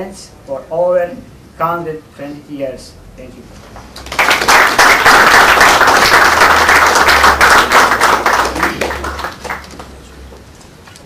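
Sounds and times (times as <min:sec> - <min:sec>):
people clapping: 0:03.8 - 0:10.2.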